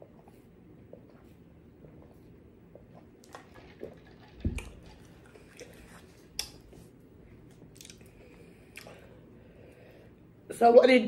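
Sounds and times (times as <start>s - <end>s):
swallowing: 0.0s - 6.8s, 7.7s - 9.2s.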